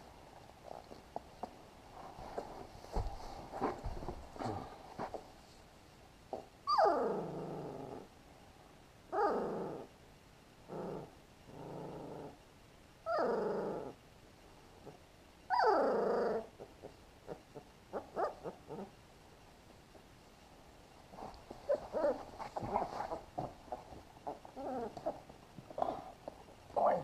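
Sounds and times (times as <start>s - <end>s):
puppy whining: 6.6s - 8.0s, 13.0s - 14.0s, 15.5s - 19.0s, 21.6s - 23.5s, 24.2s - 26.0s.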